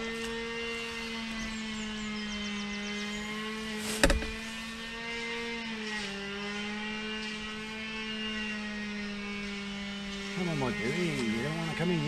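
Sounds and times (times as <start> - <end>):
engine drone: 0.0 - 12.0
sharp knock: 4.0 - 4.4.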